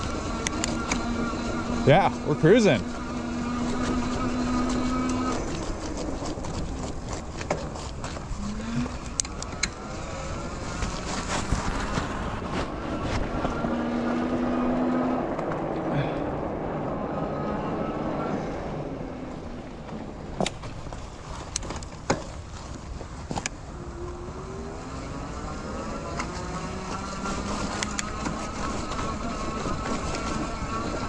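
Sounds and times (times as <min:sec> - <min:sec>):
electric motor whine: 0:00.0 - 0:16.1, 0:23.7 - 0:31.0
tyres rolling through snow: 0:00.0 - 0:31.0.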